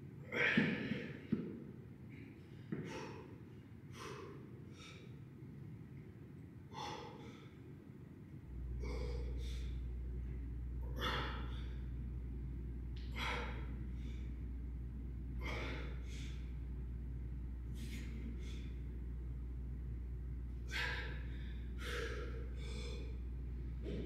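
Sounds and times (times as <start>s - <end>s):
steady low hum: 0.0s - 24.0s
man breathing hard: 2.1s - 5.4s, 6.7s - 7.7s, 8.6s - 12.0s, 13.0s - 14.5s, 15.3s - 16.7s, 17.6s - 19.0s, 20.5s - 24.0s.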